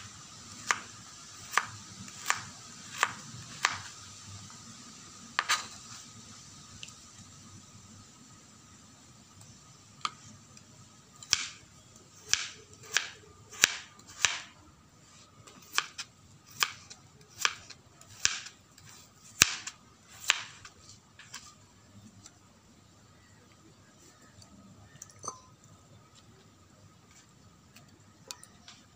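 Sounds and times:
knife chopping on plastic board: 17.4 - 18.5.

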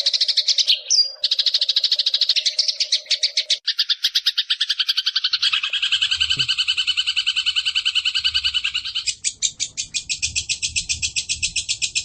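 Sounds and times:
bird rattling trill of chirps: 0.0 - 12.0.

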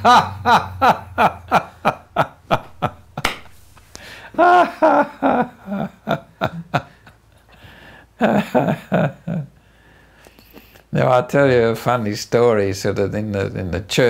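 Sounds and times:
man laughing heartily: 0.0 - 3.3, 3.9 - 7.6, 8.2 - 9.6.

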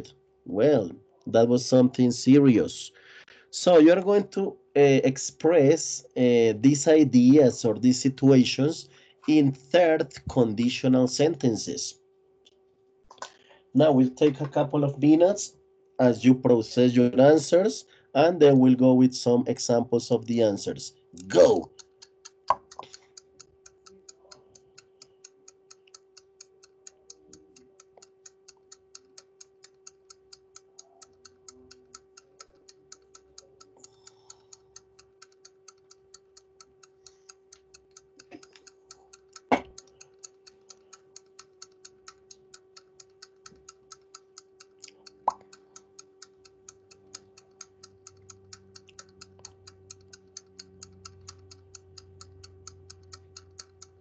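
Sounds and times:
faint steady hum: 0.0 - 54.0
quick steady ticking: 14.9 - 54.0.

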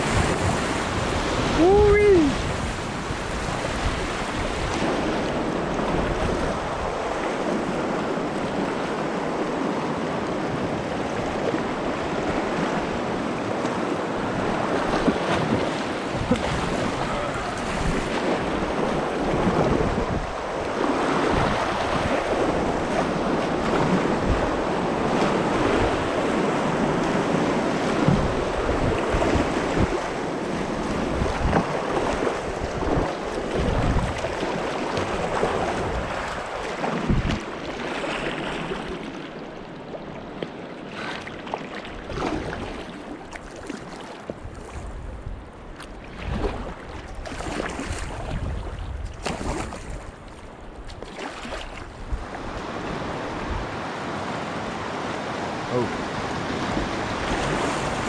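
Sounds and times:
wind buffeting microphone: 0.0 - 9.7, 14.0 - 37.6, 44.3 - 50.9, 51.7 - 58.0
river water rushing: 0.0 - 44.2, 49.2 - 58.0.

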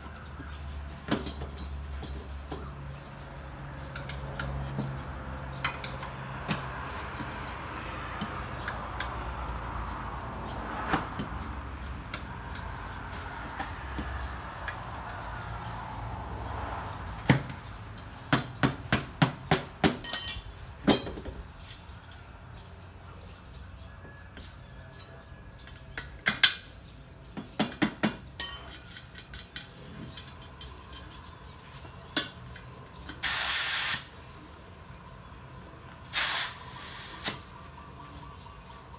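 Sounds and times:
sharp metallic knocks and clicks: 0.3 - 15.7, 17.0 - 22.6, 24.9 - 31.4
hissing air burst: 33.2 - 34.2, 36.1 - 37.5.

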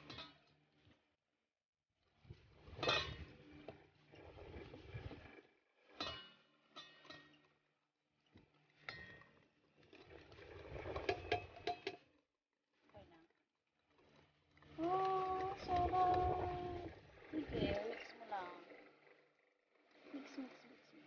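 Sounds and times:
whisk wires clinking on glass: 11.1 - 12.0.

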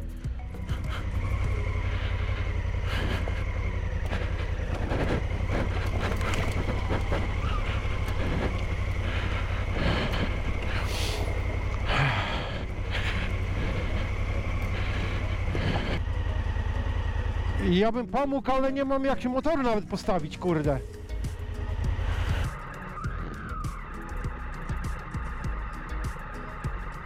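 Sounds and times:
motorcycle engine at low revs: 0.0 - 27.0
bike knocking and rattling: 0.5 - 16.0
stones crunching under tyres: 0.8 - 16.0.

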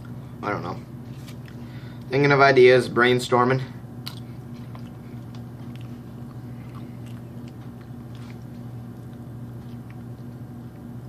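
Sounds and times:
low hum: 3.6 - 11.0
wet mouth clicks: 4.0 - 10.3
person chewing soft food: 4.0 - 11.0.

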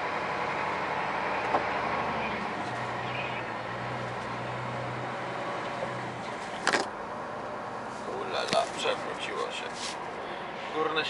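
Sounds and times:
diesel truck engine running slowly: 0.0 - 10.9.

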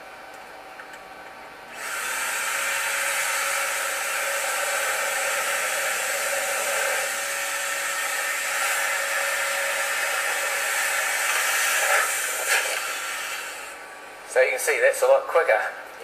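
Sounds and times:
electric air blower running: 1.7 - 14.0.

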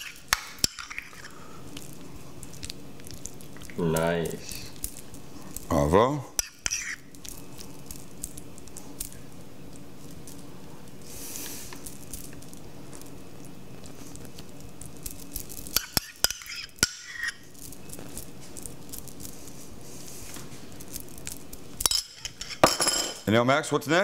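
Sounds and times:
fork scraping ceramic bowl: 0.0 - 1.3, 6.4 - 7.0, 15.7 - 17.4
low room hum: 0.0 - 24.0
metal clinking on ceramic: 21.8 - 23.2.

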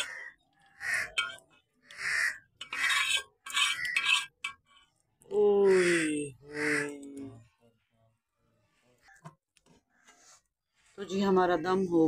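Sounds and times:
metal spoon scraping a wok: 0.0 - 5.0.

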